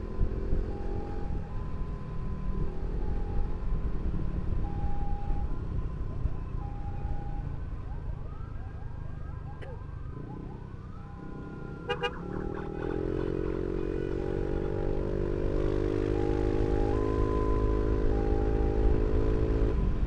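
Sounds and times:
ambulance siren: 0.0s - 20.0s
wind: 0.0s - 20.0s
motorcycle engine: 10.0s - 20.0s
short horn honks: 11.9s - 12.2s.

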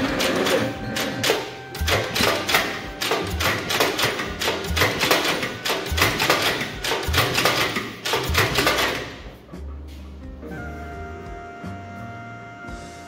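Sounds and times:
engine cranking on starter: 0.0s - 9.4s.

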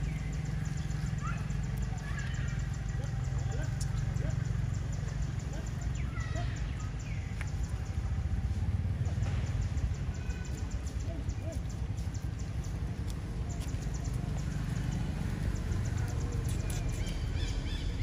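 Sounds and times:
low outdoor rumble: 0.0s - 18.0s
faint squeaks and chirps: 15.4s - 18.0s.

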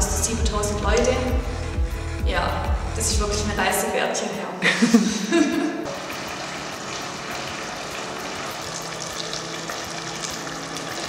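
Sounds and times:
stew sizzling in a pot: 5.9s - 11.0s.

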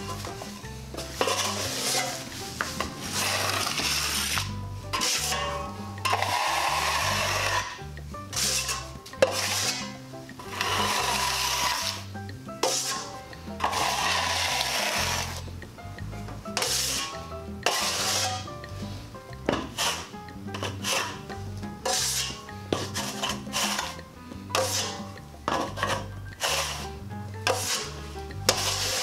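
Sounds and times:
taping knife scraping compound: 0.1s - 15.5s, 16.6s - 18.5s, 19.6s - 29.0s.

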